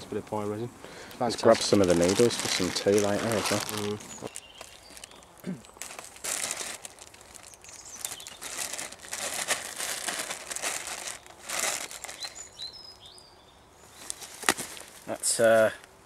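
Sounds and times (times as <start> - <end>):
plastic bag crinkling: 1.4 - 12.5.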